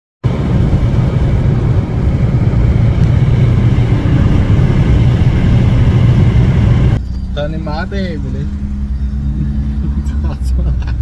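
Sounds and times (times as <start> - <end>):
car road and wind noise: 0.2 - 11.0.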